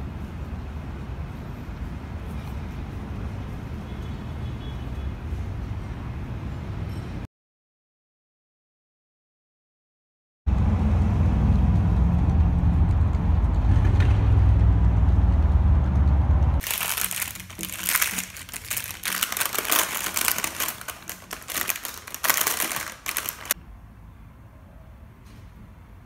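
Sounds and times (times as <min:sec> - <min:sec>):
paper bag crinkling: 0:16.6 - 0:23.6.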